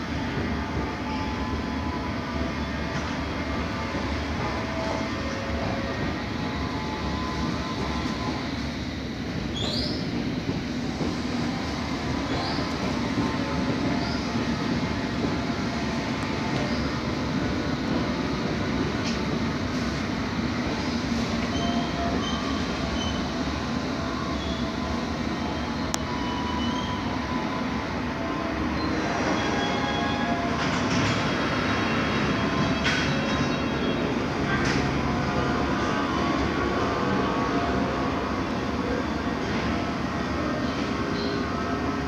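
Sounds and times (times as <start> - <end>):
train wheels rumbling on rails: 0.0 - 42.0
high-pitched train squeaks: 9.4 - 10.6, 12.0 - 15.2, 20.7 - 27.8, 28.5 - 35.0.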